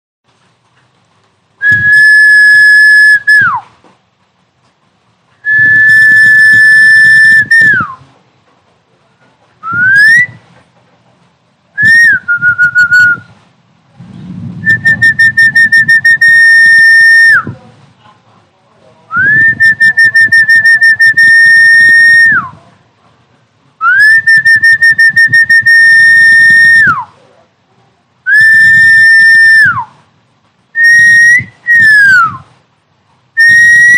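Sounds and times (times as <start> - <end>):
low fluttering buzz: 13.9 - 15.4.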